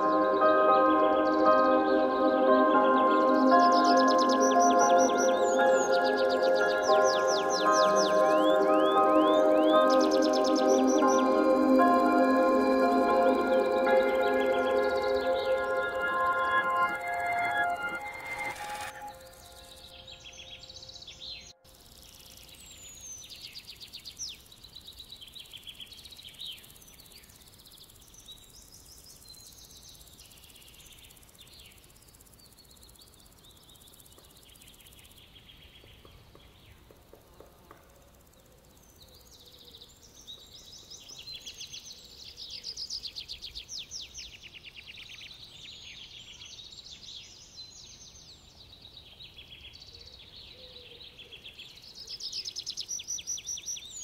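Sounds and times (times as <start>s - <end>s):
faint steady hiss: 0.0s - 54.0s
small birds chirping and trilling: 19.7s - 37.4s.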